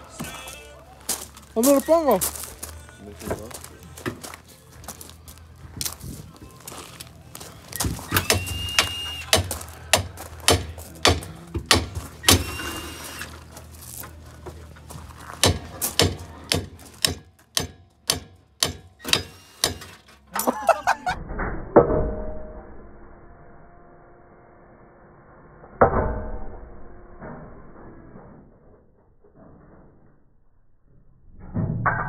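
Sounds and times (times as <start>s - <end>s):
footsteps crunching on gravel: 0.0s - 17.5s
knocks ringing like metal: 7.8s - 12.6s, 15.4s - 19.9s.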